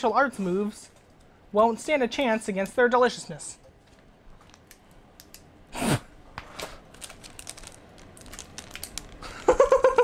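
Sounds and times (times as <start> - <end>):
plastic wrapper crinkling: 6.7 - 9.5.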